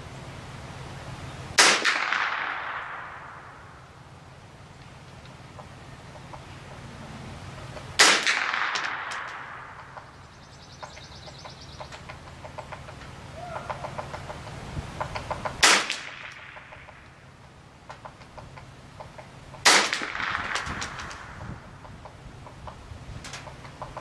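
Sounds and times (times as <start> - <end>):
rifle shots with echo: 1.6 - 3.8, 8.0 - 10.0, 15.6 - 16.8, 19.6 - 21.3
faint chirps and ticks: 9.8 - 15.6.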